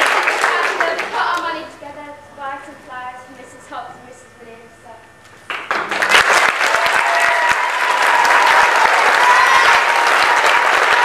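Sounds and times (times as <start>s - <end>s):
audience applauding: 0.0s - 1.5s, 5.5s - 11.0s.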